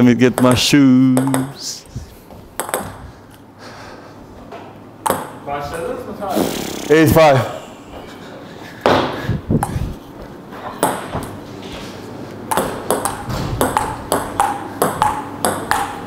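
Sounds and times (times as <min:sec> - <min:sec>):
table tennis ball clicking: 0:01.2 - 0:01.6, 0:02.6 - 0:03.0, 0:05.0 - 0:05.4, 0:12.5 - 0:16.0.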